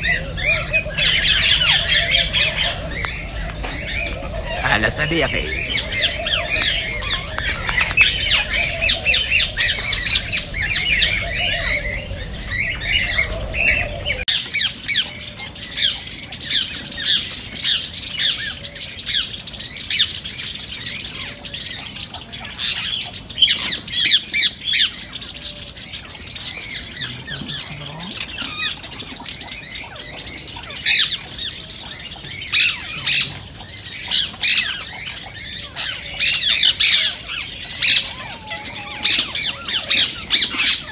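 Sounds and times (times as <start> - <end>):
low rumble: 0.0 - 14.3
parakeets squawking: 0.0 - 15.0, 26.0 - 40.9.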